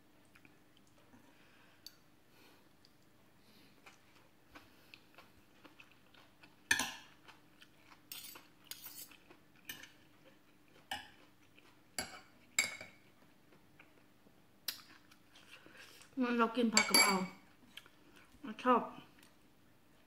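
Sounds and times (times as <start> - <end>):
cutlery clinking on glass plate: 16.8 - 17.3.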